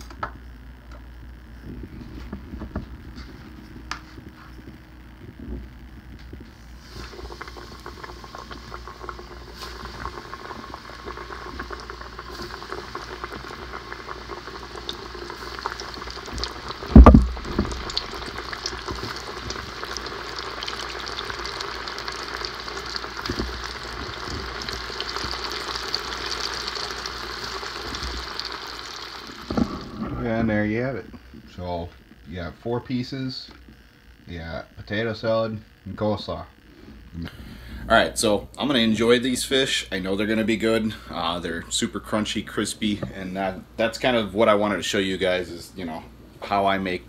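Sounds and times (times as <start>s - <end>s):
food deep-frying in oil: 5.9s - 30.6s
loud thump: 16.9s - 17.9s.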